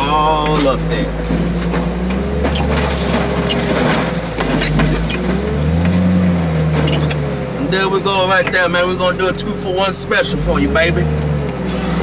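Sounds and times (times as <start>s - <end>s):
metal clunks and creaks: 0.4s - 7.4s
machine engine and hydraulics: 0.4s - 12.0s.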